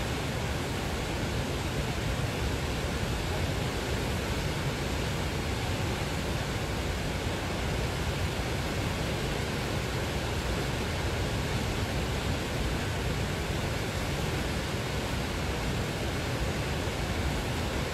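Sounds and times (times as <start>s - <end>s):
stream rushing over rocks: 0.0s - 17.9s.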